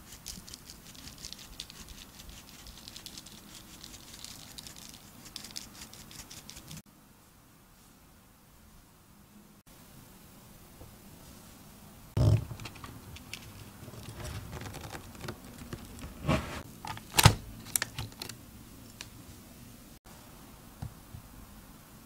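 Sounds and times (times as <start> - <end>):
soft crackling: 12.2 - 16.7
paper rustling: 12.2 - 18.3.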